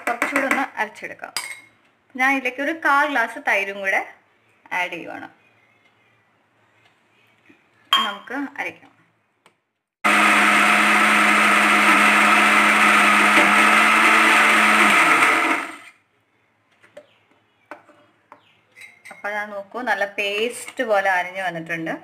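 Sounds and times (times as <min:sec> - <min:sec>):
electric mixer grinder running: 0:10.0 - 0:15.9.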